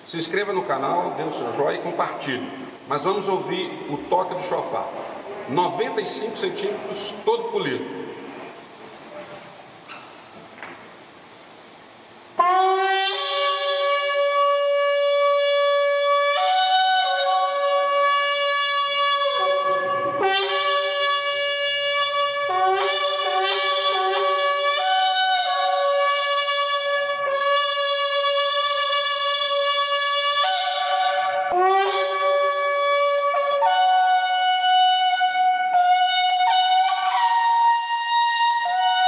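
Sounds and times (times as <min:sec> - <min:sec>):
shofar blasts: 0:12.3 - 0:39.0.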